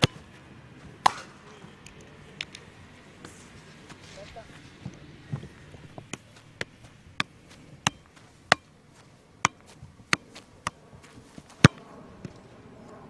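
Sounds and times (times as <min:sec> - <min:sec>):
football being kicked: 0:00.0 - 0:00.4, 0:05.3 - 0:08.7, 0:09.4 - 0:11.8.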